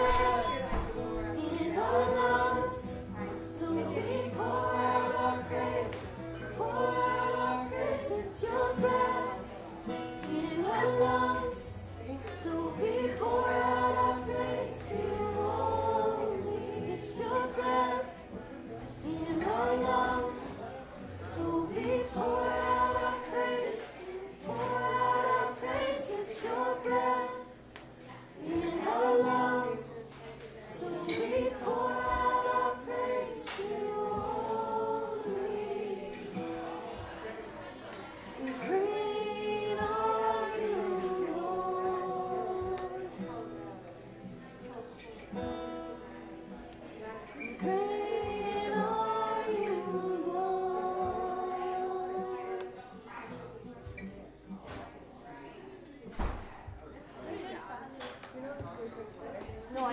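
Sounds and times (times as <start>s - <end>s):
women singing together: 0.0s - 44.1s, 46.5s - 54.6s
strummed acoustic guitar: 0.0s - 46.8s.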